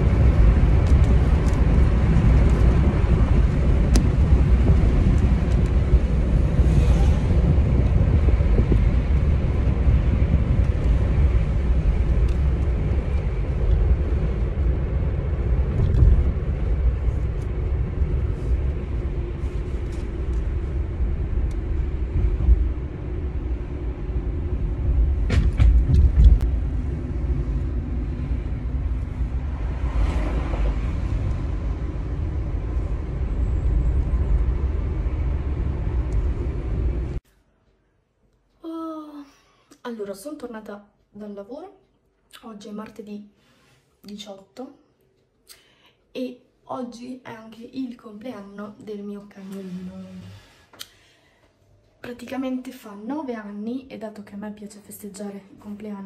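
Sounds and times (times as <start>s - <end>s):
car cabin road rumble: 0.0s - 37.2s.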